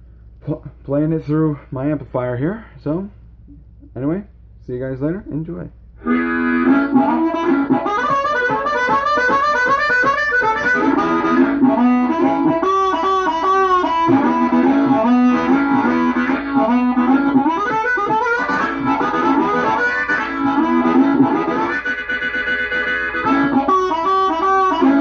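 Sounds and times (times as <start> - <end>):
amplified harmonica playing: 6.0 - 25.0.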